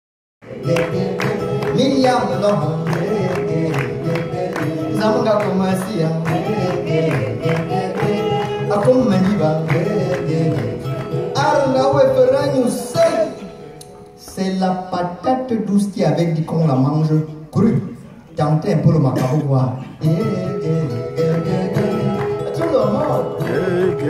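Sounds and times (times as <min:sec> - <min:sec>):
man singing: 0:00.4 - 0:13.6, 0:18.7 - 0:24.0.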